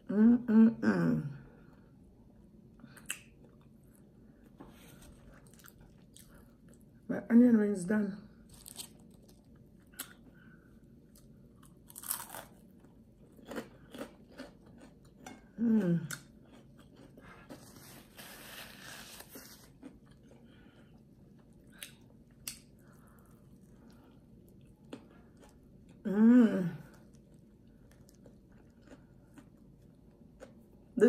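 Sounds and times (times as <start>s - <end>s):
crunching onion rings: 8.4s - 10.3s, 11.1s - 15.5s
person humming mmm: 15.6s - 16.3s, 26.0s - 27.0s.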